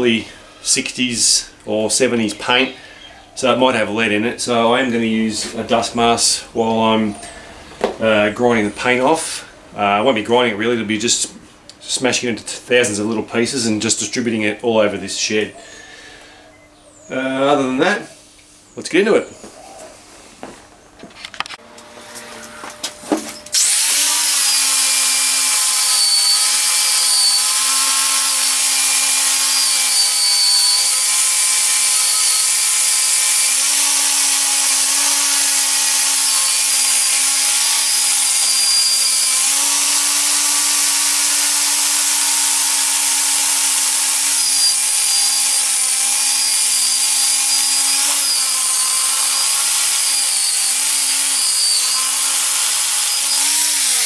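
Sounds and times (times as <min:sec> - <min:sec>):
angle grinder wire wheel: 0:21.6 - 0:54.0.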